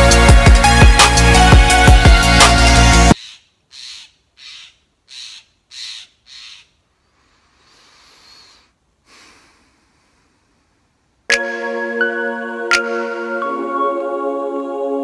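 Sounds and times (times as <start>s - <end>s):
man breathing hard: 7.0s - 11.0s.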